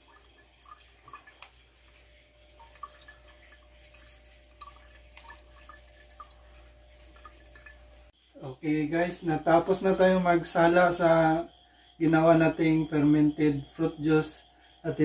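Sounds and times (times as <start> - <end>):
juice dripping into jug: 0.0 - 8.2.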